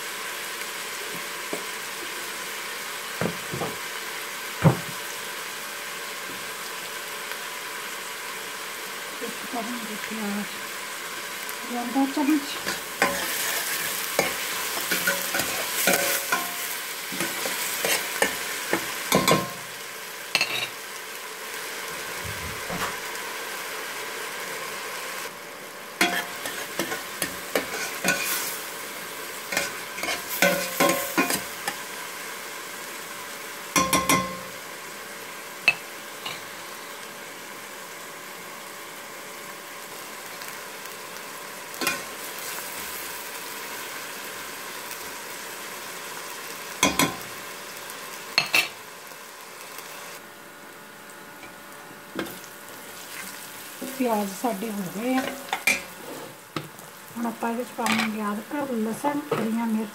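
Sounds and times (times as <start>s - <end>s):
onions sizzling in hot oil: 0.0s - 59.9s.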